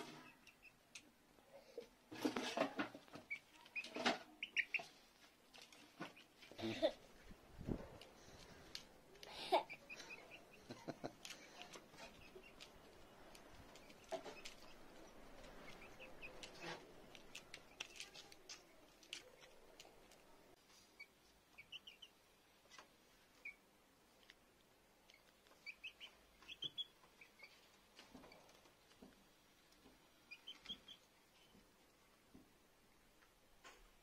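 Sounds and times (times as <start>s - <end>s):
chicks peeping: 2.4s - 6.5s, 9.5s - 18.4s, 20.8s - 22.2s, 25.0s - 28.6s, 30.1s - 31.6s
beaks pecking on plastic dish: 8.0s - 20.3s.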